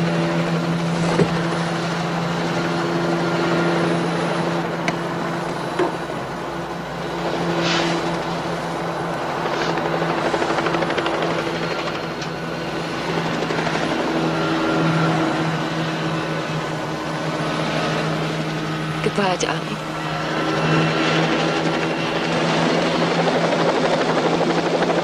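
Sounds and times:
helicopter rotor drone: 0:00.0 - 0:25.0.

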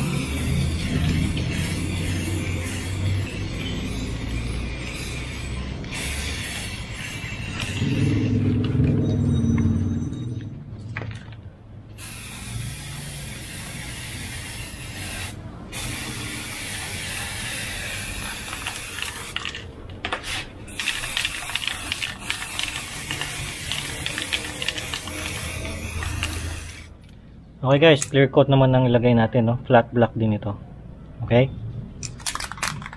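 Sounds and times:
spray paint can hissing: 0:00.0 - 0:08.7, 0:12.0 - 0:27.0.

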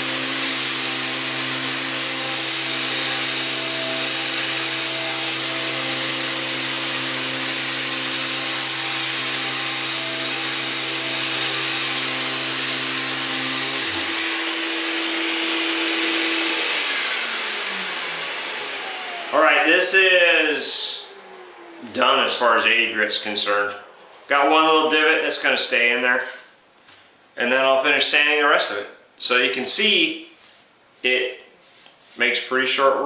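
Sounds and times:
electric sander running: 0:00.0 - 0:20.0
dust extraction vacuum rushing: 0:00.0 - 0:22.8.

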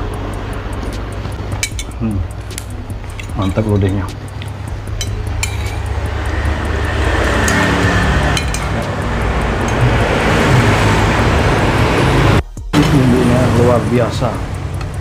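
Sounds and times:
road traffic rumble: 0:00.0 - 0:15.0
metal spoon clinking ceramic bowl: 0:01.6 - 0:02.0, 0:03.1 - 0:04.1, 0:05.0 - 0:05.9, 0:07.2 - 0:08.9.

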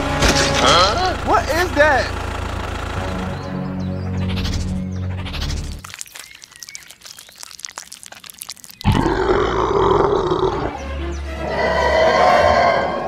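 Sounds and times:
quick crackling clicks: 0:05.4 - 0:09.9
monster roar: 0:08.8 - 0:10.8, 0:11.4 - 0:13.0.

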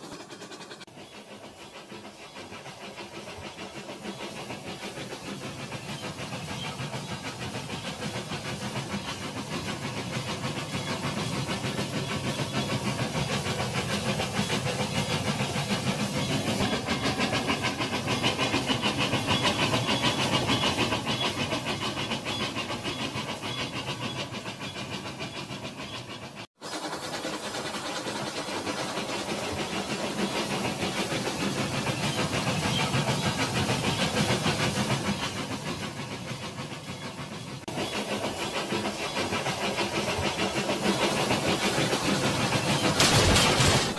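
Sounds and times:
toy train rattling through water: 0:26.6 - 0:34.6, 0:37.7 - 0:43.9.

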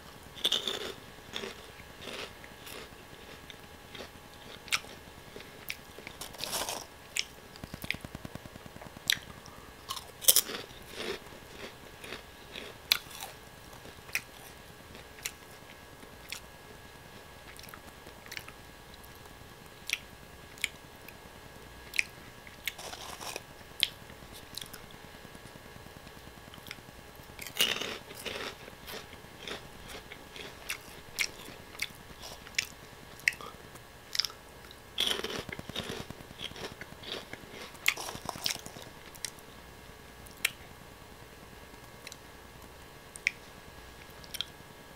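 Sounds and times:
crunching snack sticks: 0:00.4 - 0:15.4, 0:21.9 - 0:24.8, 0:27.4 - 0:34.4, 0:35.0 - 0:39.4.

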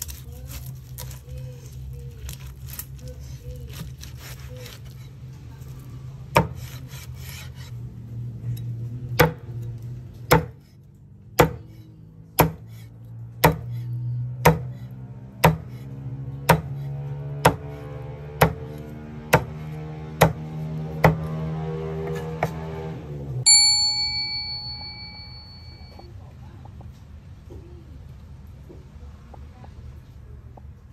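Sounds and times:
cleaver chopping pork on board: 0:06.2 - 0:07.7, 0:09.1 - 0:09.6, 0:10.2 - 0:10.6, 0:11.4 - 0:11.8, 0:12.4 - 0:12.8, 0:13.4 - 0:22.8.

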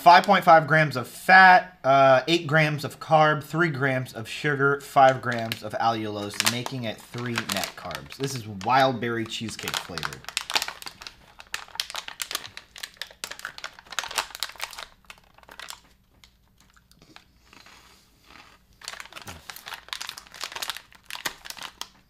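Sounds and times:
plastic pouch crinkling: 0:05.0 - 0:17.7, 0:18.4 - 0:22.0
crunchy cereal chewing: 0:06.2 - 0:22.0.

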